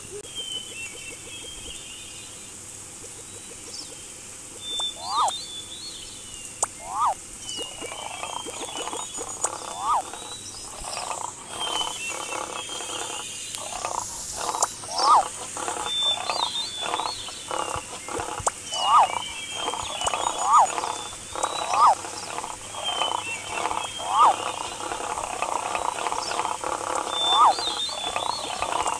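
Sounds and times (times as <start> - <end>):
high bird chirps: 4.6 - 28.9
sharp rising and falling cries: 4.9 - 5.4, 6.8 - 8.4, 9.6 - 10.2, 14.5 - 17.2, 18.6 - 25.3, 27.0 - 28.9.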